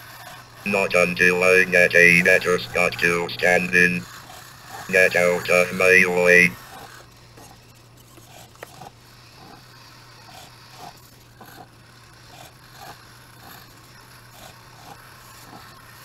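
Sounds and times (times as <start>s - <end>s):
steady low hum: 0.7s - 4.0s, 4.9s - 6.6s.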